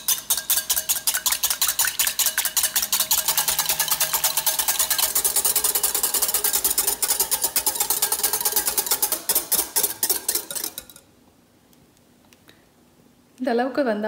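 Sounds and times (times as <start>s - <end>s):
whisk clicking against glass bowl: 0.0s - 11.1s.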